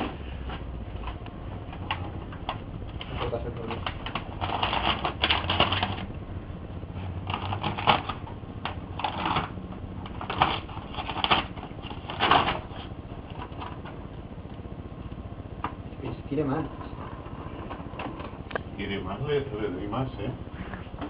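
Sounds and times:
printer mechanism clattering: 0.0 - 6.1, 7.2 - 14.0.

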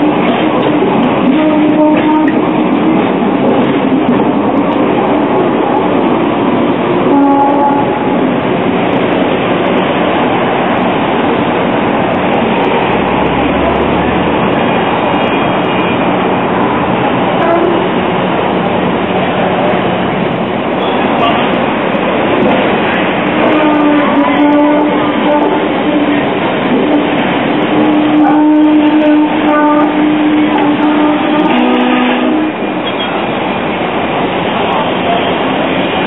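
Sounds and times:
tram rolling on rails: 0.0 - 36.0
tram wheels squealing: 32.8 - 33.4.

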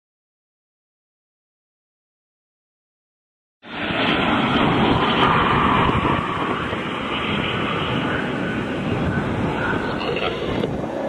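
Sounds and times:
jets passing low overhead: 3.6 - 11.0.

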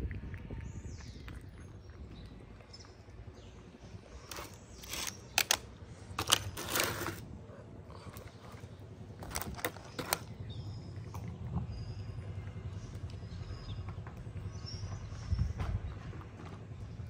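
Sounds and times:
cats chewing: 0.0 - 5.1, 6.9 - 13.2
steady low rumble: 0.0 - 6.4, 7.2 - 17.0
sharp clicks: 4.3 - 6.6.

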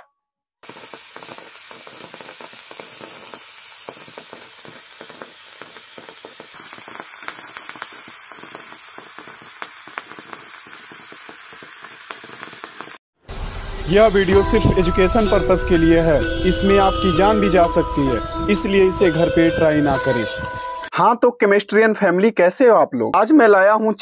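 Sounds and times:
crackles and pops: 0.6 - 13.0
burning charcoal hissing: 0.6 - 16.4.

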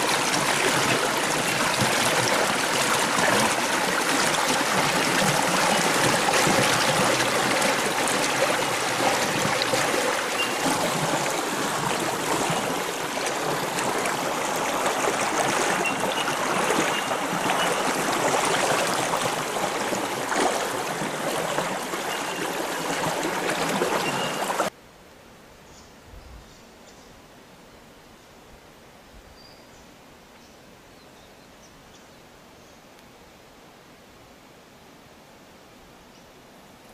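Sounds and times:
rushing stream: 0.0 - 24.8
quiet outdoor background: 24.7 - 36.9.

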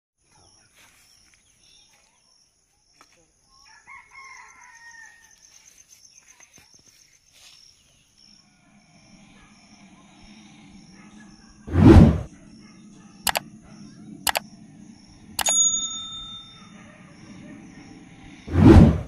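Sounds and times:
faint rooster crowing: 3.5 - 5.8.

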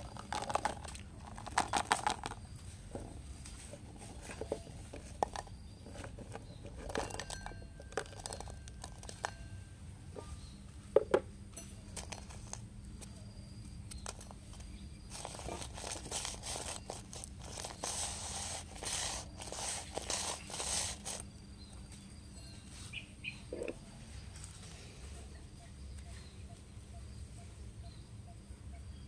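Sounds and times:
candies clicking in steel bowl: 0.0 - 2.4, 6.2 - 9.4, 15.1 - 21.2
faint regular chirp: 0.0 - 10.9, 11.5 - 29.0.

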